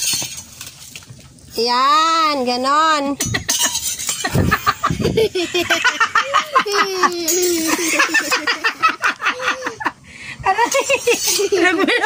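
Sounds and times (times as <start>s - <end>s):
people laughing: 3.3s - 12.0s.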